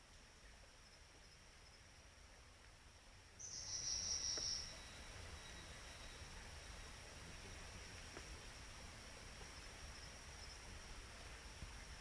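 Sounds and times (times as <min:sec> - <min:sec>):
insect trill: 0:00.2 - 0:02.4, 0:03.3 - 0:12.0.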